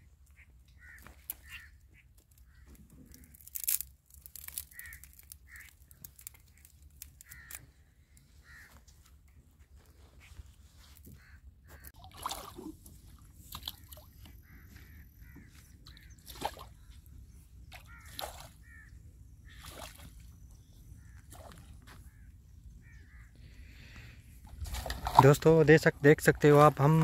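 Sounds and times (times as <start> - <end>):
crows cawing: 0.4 - 9.0, 11.0 - 12.0, 14.1 - 16.2, 17.8 - 19.9, 21.0 - 24.2
water sloshing: 11.8 - 16.8, 24.4 - 25.6
pole splashing in water: 12.0 - 12.8, 24.6 - 25.3.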